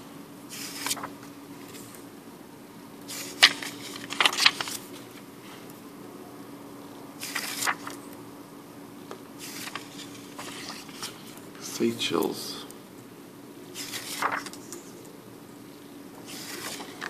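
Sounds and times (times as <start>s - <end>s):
faint steady hum: 0.0s - 17.0s
banknotes rustling and crackling: 0.5s - 2.0s, 3.1s - 5.6s, 7.2s - 8.1s, 9.4s - 11.7s, 13.7s - 15.1s, 16.2s - 17.0s.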